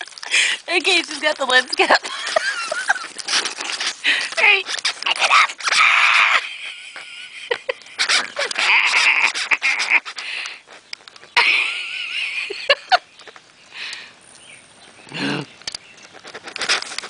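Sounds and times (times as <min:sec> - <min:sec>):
plastic cap being chewed: 0:00.0 - 0:05.8, 0:15.7 - 0:17.0.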